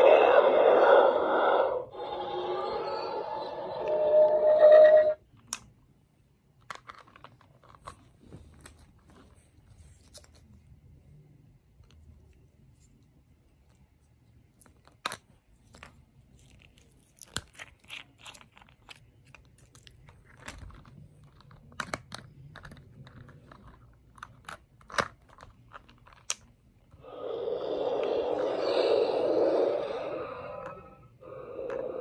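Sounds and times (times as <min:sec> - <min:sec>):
toy sound effect hiss: 0:27.0 - 0:32.0.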